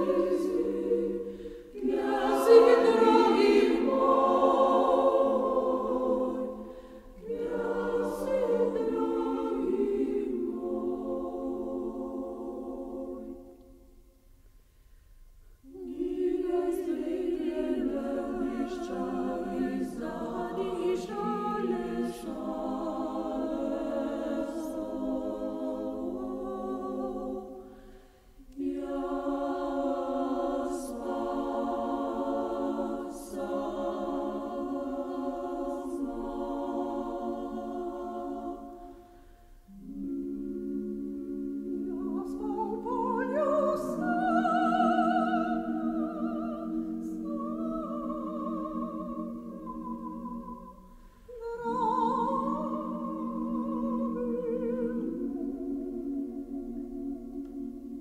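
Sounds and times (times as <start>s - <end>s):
mixed choir singing in harmony: 0.0s - 13.9s, 15.6s - 58.0s.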